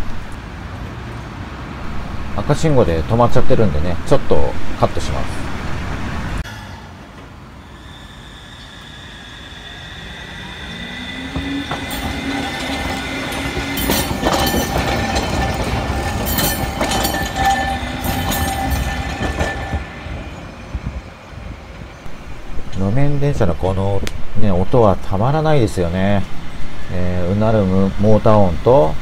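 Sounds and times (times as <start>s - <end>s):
tram motor hum: 4.0s - 22.7s
wheels clacking over rail joints: 10.3s - 20.8s.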